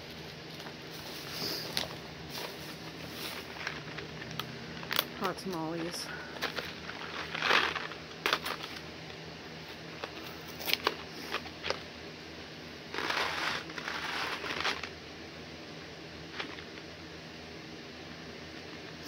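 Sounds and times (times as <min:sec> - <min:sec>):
packaging crinkling: 0:00.0 - 0:08.9, 0:12.9 - 0:14.9.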